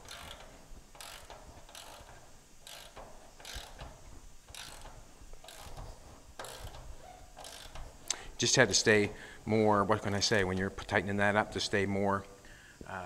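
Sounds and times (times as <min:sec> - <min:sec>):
ratchet wrench clicking: 0:00.0 - 0:09.2.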